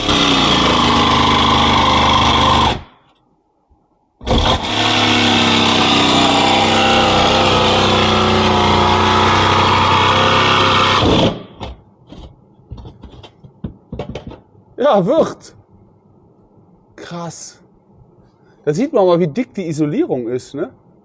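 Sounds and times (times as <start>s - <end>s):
electric jigsaw sawing: 0.0s - 2.9s, 4.2s - 11.4s.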